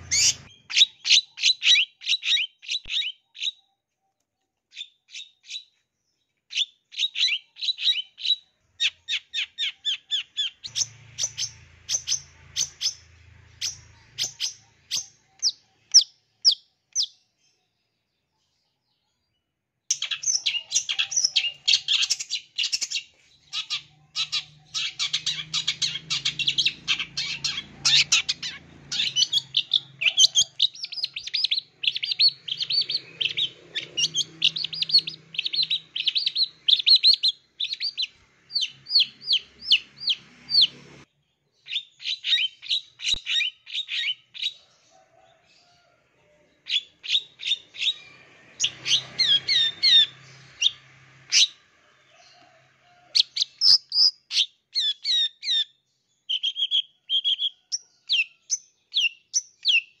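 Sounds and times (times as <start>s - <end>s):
shrike singing chattering song: 0.0s - 3.6s, 6.6s - 17.2s, 19.9s - 40.9s.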